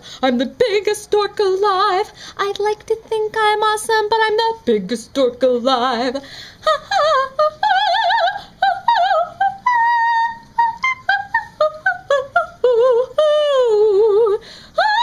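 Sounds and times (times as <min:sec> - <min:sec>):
woman singing high vibrato notes: 0:04.2 - 0:15.0.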